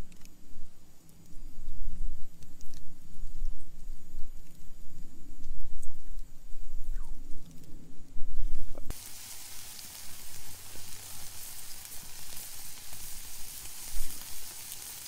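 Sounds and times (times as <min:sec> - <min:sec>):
shrimp sizzling on a grill: 0:08.9 - 0:15.0.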